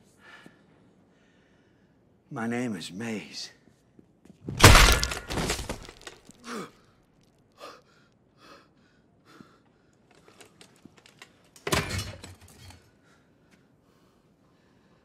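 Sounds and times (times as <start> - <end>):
knocks and scuffling clicks: 4.6 - 6.3.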